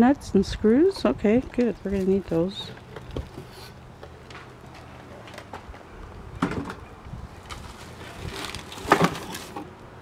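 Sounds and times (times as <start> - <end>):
packaging rustling in cardboard box: 7.5 - 9.6.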